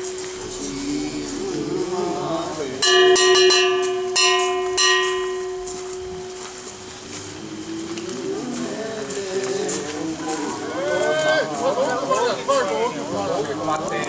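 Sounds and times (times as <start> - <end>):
hand-held gongs ringing: 0.0 - 8.1.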